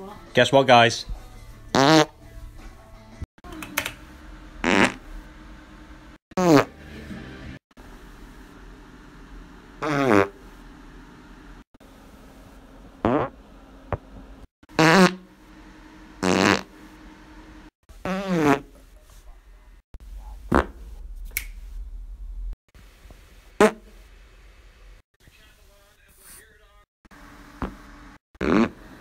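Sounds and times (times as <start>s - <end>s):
farts with buzzing pitch: 1.7s - 2.2s, 4.6s - 5.2s, 6.3s - 6.8s, 9.8s - 10.4s, 13.0s - 13.4s, 14.6s - 15.4s, 16.2s - 16.8s, 17.9s - 18.8s, 23.6s - 23.9s, 28.4s - 29.0s.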